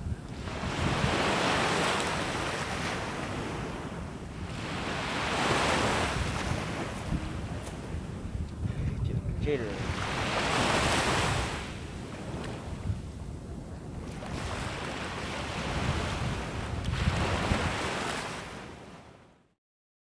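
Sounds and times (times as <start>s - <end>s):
wind buffeting microphone: 0.0s - 18.8s
surf washing up beach: 0.0s - 19.3s.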